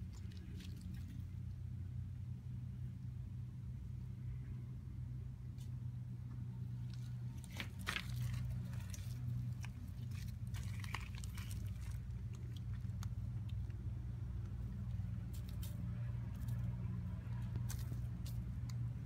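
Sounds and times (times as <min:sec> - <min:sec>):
steady low hum: 0:00.0 - 0:19.0
small crunching clicks on gravel: 0:06.8 - 0:19.0.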